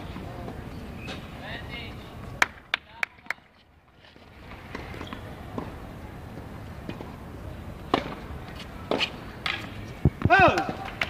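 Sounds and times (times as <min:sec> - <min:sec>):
outdoor background noise: 0:00.0 - 0:11.0
tennis ball being hit: 0:07.9 - 0:08.3.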